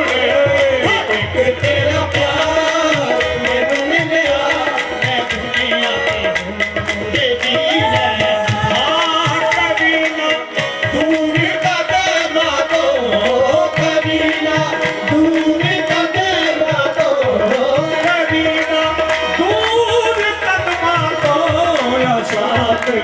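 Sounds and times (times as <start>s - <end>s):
tabla drumming: 0.0s - 23.0s.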